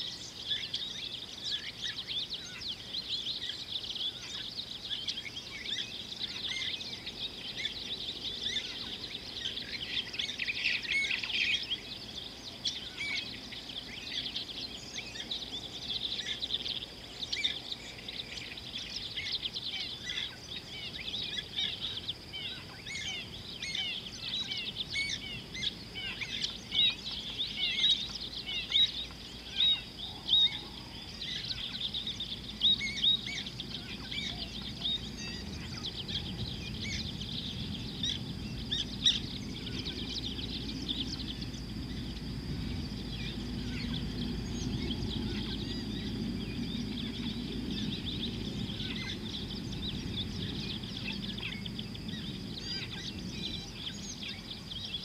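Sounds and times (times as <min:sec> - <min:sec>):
birds chirping and calling: 0:00.0 - 0:55.0
steady high hum: 0:00.0 - 0:55.0.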